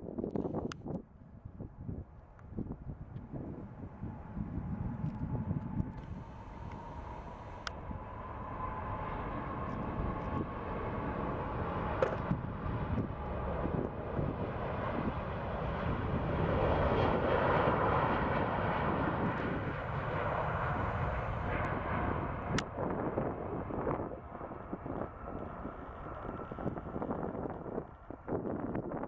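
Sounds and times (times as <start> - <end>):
jet engines rumbling on takeoff: 0.1 - 29.0
thin steady whine: 3.4 - 13.6.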